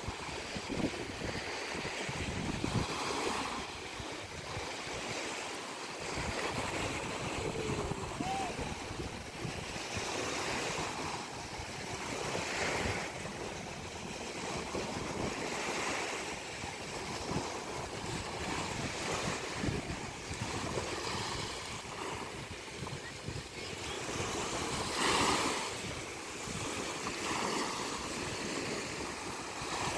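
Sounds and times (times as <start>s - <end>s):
wind rumble on microphone: 0.0s - 5.2s, 6.0s - 29.9s
small waves washing onto sand: 0.0s - 29.9s.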